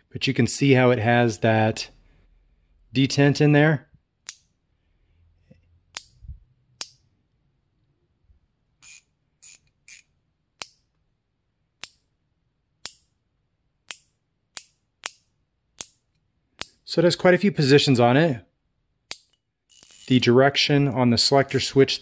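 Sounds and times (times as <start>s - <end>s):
ratchet head metallic clicks: 8.8s - 10.8s, 19.1s - 20.1s.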